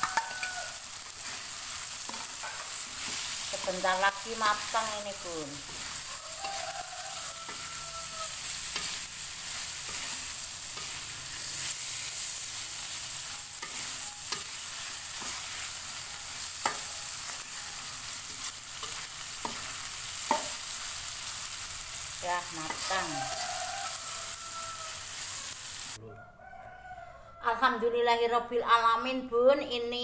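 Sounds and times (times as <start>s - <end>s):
metal spatula clicking on pan: 0.0s - 0.7s, 16.6s - 16.9s
mussels sizzling in a wok: 0.0s - 26.0s.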